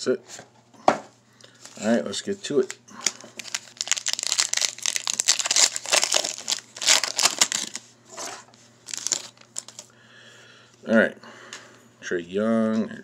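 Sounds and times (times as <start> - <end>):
foil pack tearing and crinkling: 3.0 - 7.8, 8.8 - 9.9.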